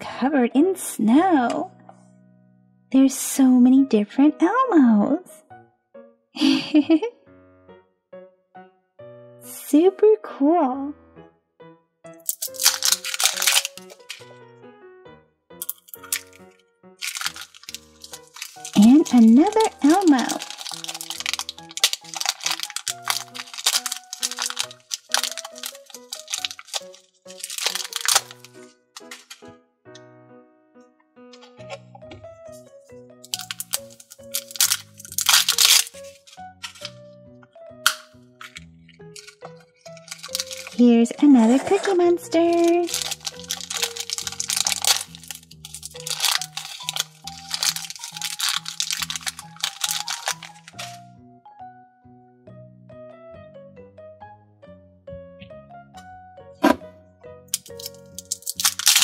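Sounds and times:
light background music: 0.0 - 59.0
plastic wrapper crinkling: 12.2 - 14.3, 15.6 - 16.4, 17.0 - 29.5, 33.2 - 37.0, 37.8 - 40.9, 41.6 - 51.0, 57.6 - 59.0.

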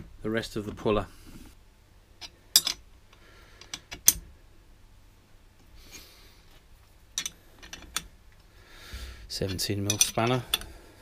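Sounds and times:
steel parts clinking together: 2.2 - 2.8, 7.2 - 8.1, 9.5 - 10.7.

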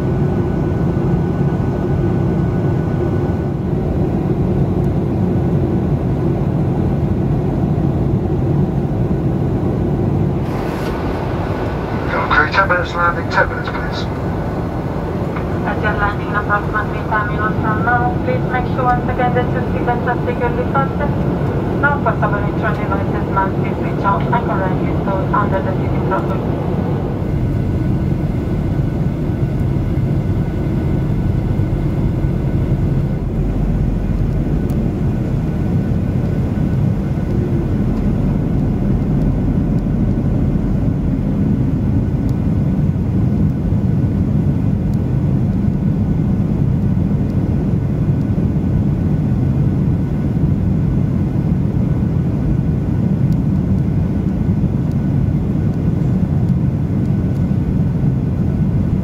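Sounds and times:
jet engines and airflow roaring: 0.0 - 59.0.

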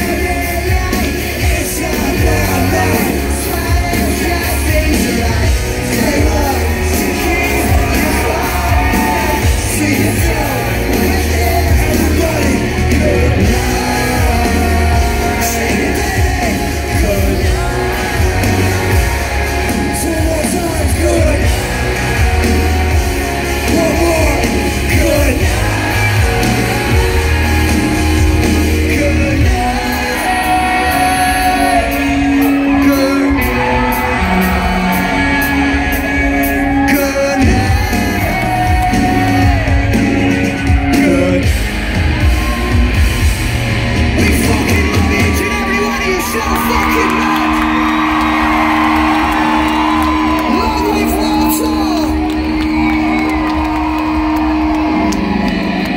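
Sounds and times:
person singing: 0.0 - 41.6
crowd yelling along: 0.0 - 55.9
live rock band playing: 0.0 - 55.9.

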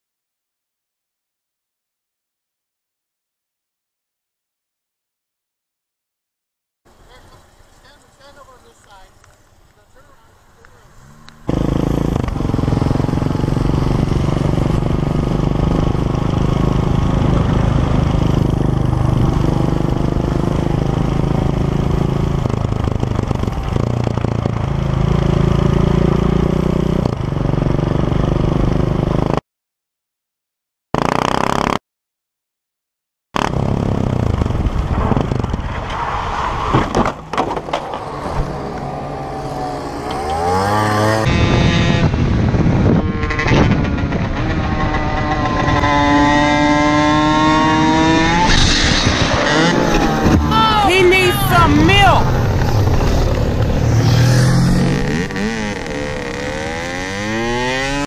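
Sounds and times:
motorcycle engine running: 11.0 - 29.4.

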